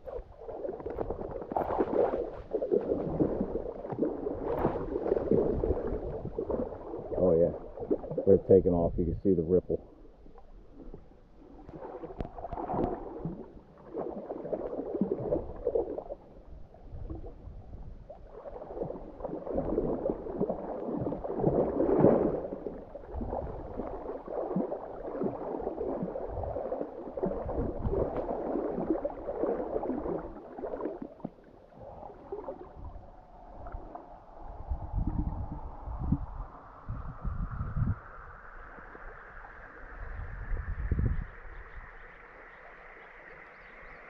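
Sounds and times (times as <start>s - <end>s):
dog wading through water: 0.0s - 8.3s, 18.2s - 34.0s.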